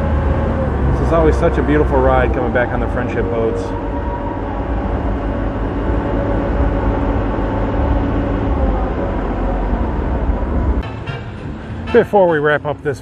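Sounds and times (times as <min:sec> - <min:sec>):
boat engine drone: 0:00.0 - 0:13.0.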